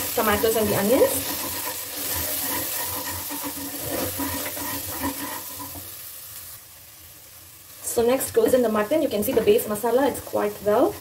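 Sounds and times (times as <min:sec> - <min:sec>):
wooden spatula scraping: 0:00.0 - 0:06.0
onions and tomatoes sizzling: 0:00.0 - 0:11.0.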